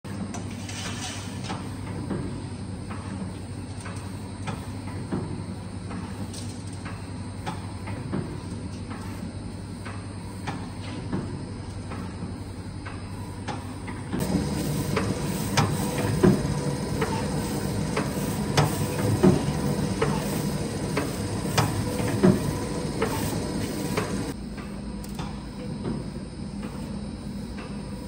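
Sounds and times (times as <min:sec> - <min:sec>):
dough roll machine hum: 0:00.1 - 0:28.0
machine clicks and knocks: 0:13.5 - 0:24.4.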